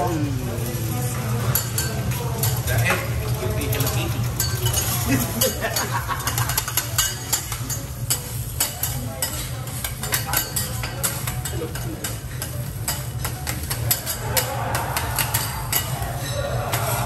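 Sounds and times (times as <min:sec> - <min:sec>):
egg sizzling: 0:00.0 - 0:11.6.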